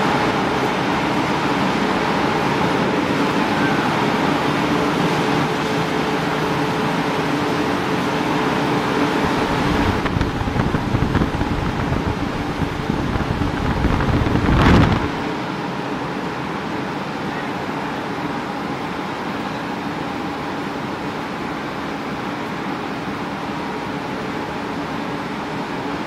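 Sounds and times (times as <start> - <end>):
rolling mill machinery din: 0.0 - 26.0
rumbling rush: 9.2 - 15.2.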